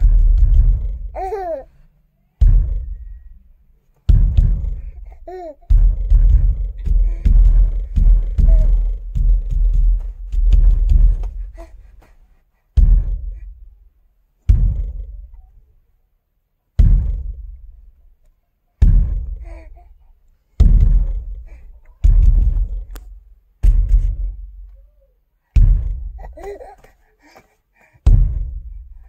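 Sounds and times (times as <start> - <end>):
deep booming thuds: 0.0 - 1.6, 2.4 - 3.4, 4.0 - 12.0, 12.7 - 13.8, 14.4 - 15.4, 16.8 - 17.9, 18.8 - 19.8, 20.6 - 24.6, 25.6 - 26.7, 28.0 - 29.0.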